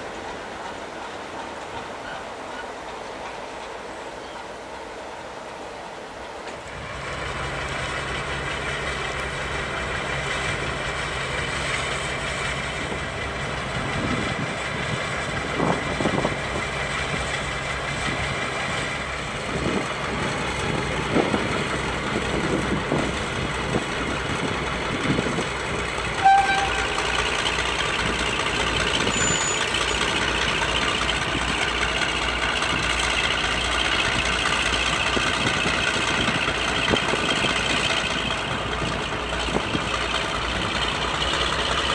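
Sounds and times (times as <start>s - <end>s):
diesel locomotive engine running: 0.0s - 41.9s
locomotive horn toot: 26.1s - 27.3s.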